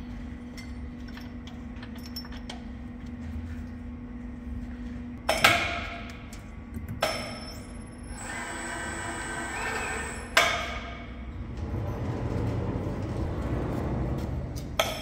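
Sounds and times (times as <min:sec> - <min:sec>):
electric hoist running: 0:08.1 - 0:10.5.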